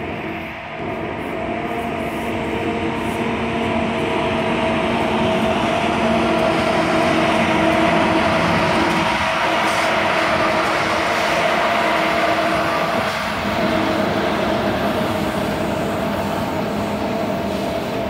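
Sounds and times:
electric locomotive hum: 0.0s - 18.0s
train running noise: 0.0s - 18.0s.

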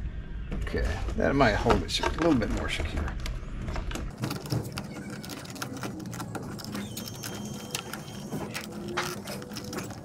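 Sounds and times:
hands clicking and rattling parts: 4.1s - 10.0s.

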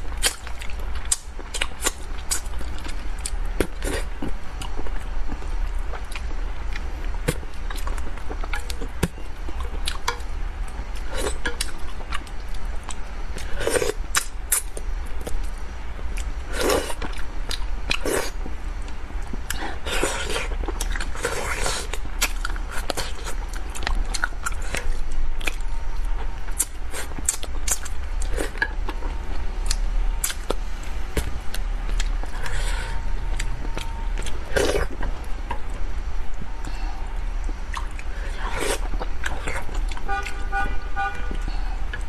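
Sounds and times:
steady low hum: 0.0s - 42.0s
chewing: 0.2s - 30.6s, 37.4s - 40.1s.

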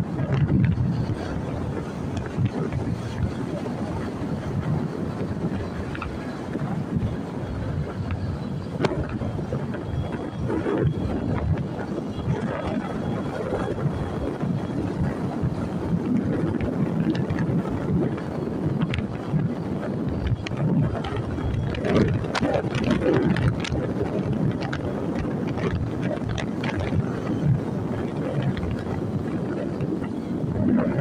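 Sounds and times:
road vehicle rumble: 0.0s - 31.0s
wind buffeting microphone: 0.0s - 31.0s.

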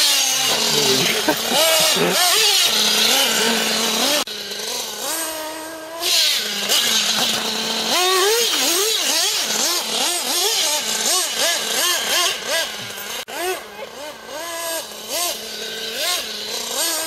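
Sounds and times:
toy car motor revving: 0.0s - 17.0s.

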